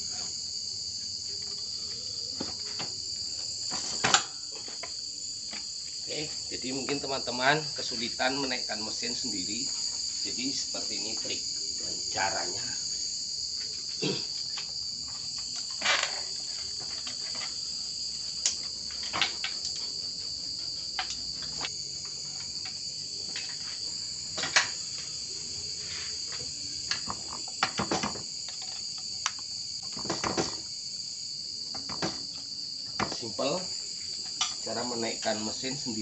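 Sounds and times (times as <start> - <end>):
insects chirring: 0.0 - 36.0
metal knocks and clunks: 29.9 - 30.6, 31.7 - 32.3, 33.0 - 33.3.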